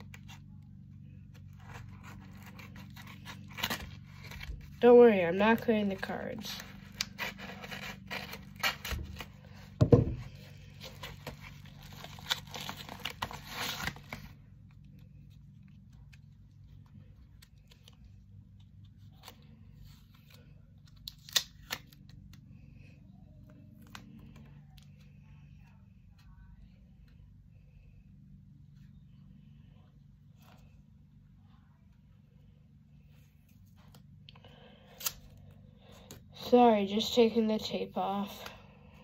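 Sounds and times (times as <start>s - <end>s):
scissors cutting packaging: 1.5s - 4.8s, 5.4s - 9.7s, 10.3s - 14.4s, 20.9s - 22.0s
packaging tearing and crinkling: 1.6s - 4.8s, 6.6s - 9.7s, 10.8s - 14.4s, 20.9s - 22.1s.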